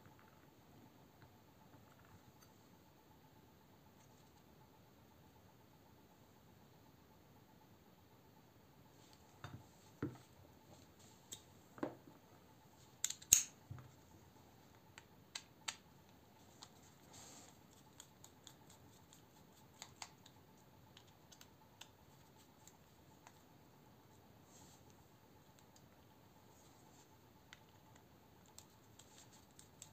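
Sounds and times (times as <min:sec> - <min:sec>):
small clicks and taps: 0:19.8 - 0:22.0.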